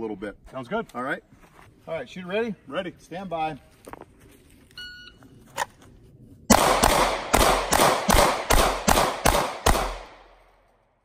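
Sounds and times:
pistol shots: 6.5 - 10.4.

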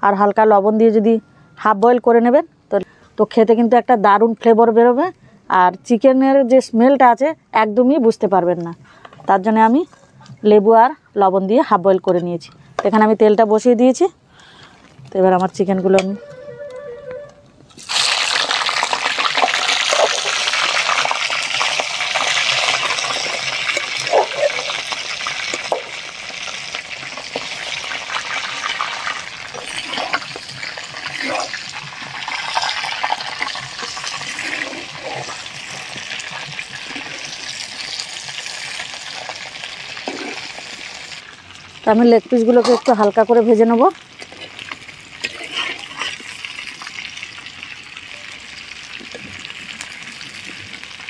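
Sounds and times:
oil popping: 17.7 - 41.8
chicken frying in hot oil: 17.8 - 51.0.

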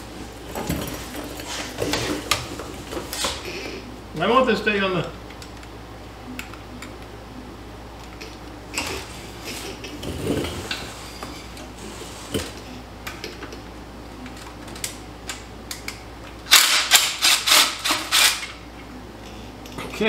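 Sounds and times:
impact wrench hammering: 16.5 - 18.5.

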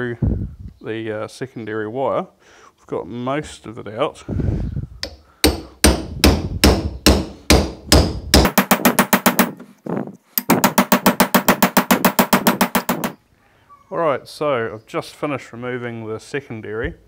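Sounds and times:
hammer striking steel punch: 5.0 - 9.6, 10.4 - 13.2.

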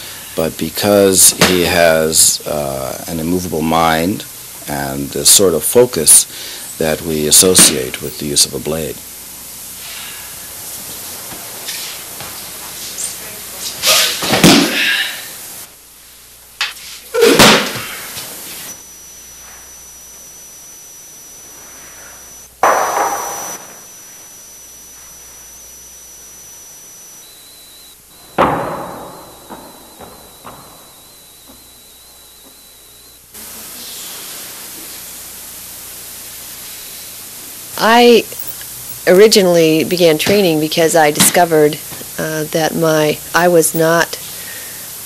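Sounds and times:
bodies thudding on mat: 14.2 - 14.8.

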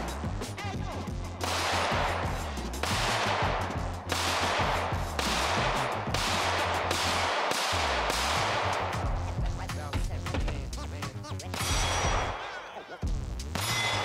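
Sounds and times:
bass-heavy background music: 0.0 - 14.0
pistol shots: 1.4 - 9.3.

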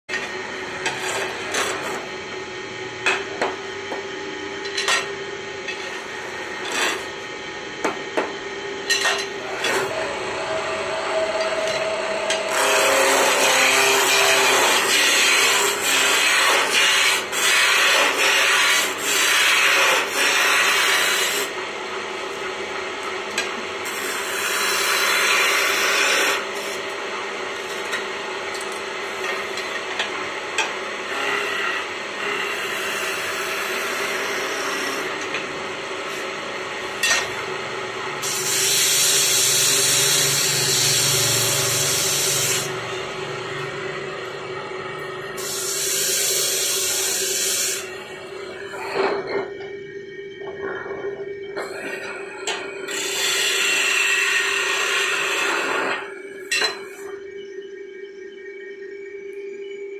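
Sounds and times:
wood lathe humming: 9.4 - 27.7, 29.0 - 48.9, 51.8 - 56.0.

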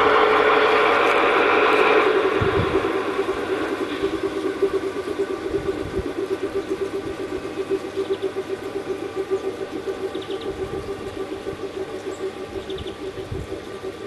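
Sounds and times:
pulsing diesel engine idle: 0.0 - 14.0
faint bird chirps: 7.4 - 14.0.

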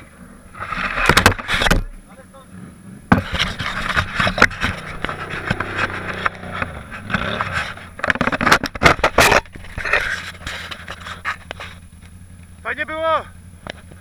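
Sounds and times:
quad engine idling: 4.1 - 14.0.

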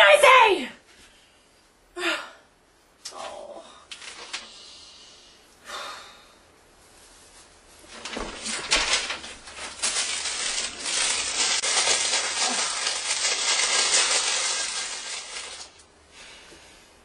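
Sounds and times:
fabric rustling and crinkling: 6.7 - 15.8.

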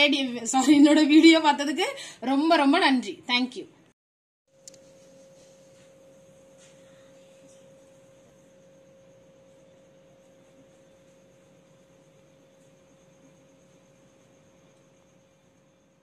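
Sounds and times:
faint steady tone: 4.5 - 16.0.

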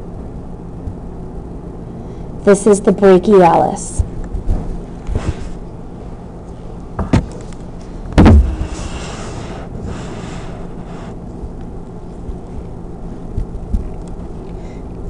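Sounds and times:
steady low hum: 0.0 - 15.0
loud low thump: 8.2 - 9.0.

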